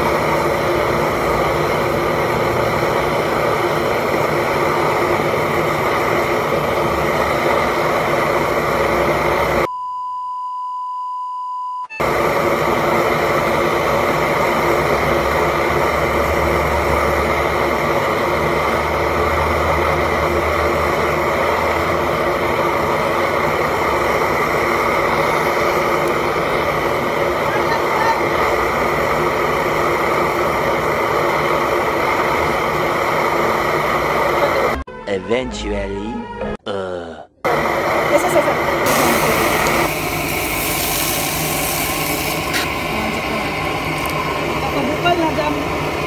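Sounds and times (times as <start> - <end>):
gas stove burner hissing: 0.0 - 9.7, 12.0 - 34.8, 37.5 - 46.0
steady beep: 9.7 - 12.0.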